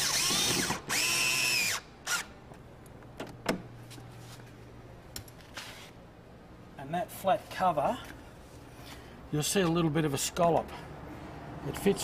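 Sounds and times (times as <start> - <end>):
electric screwdriver motor whine: 0.0 - 2.2.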